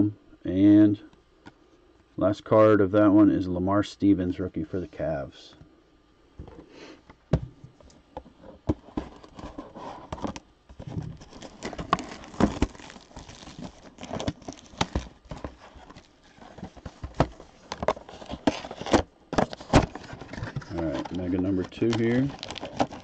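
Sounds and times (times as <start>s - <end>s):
plastic wrap crinkling: 9.1s - 23.0s
scissors cutting plastic wrap: 21.6s - 23.0s.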